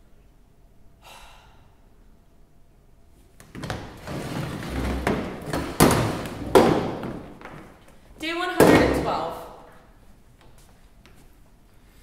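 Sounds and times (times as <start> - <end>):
footsteps: 3.2 - 11.5
chairs scuffing on wooden floor: 3.4 - 7.9
sharp knocks: 5.1 - 7.6.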